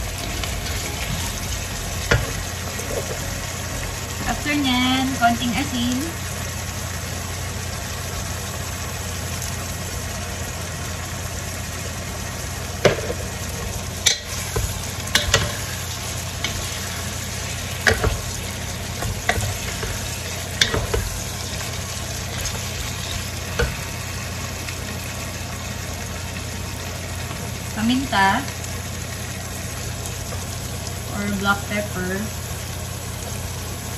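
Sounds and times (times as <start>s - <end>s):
pork sizzling in a pan: 0.0s - 33.9s
utensil knocking against pan: 17.8s - 18.3s, 20.6s - 21.1s.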